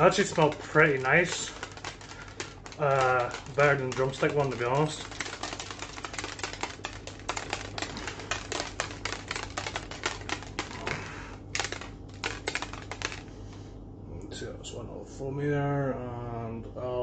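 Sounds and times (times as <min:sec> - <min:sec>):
plastic shaker bottle rattling: 0:00.0 - 0:13.3.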